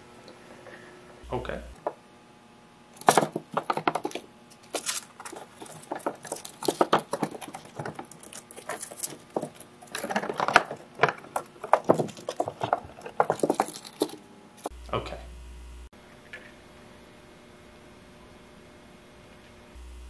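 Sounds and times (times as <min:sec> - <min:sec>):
hamster claws scratching cardboard: 0:03.0 - 0:14.7.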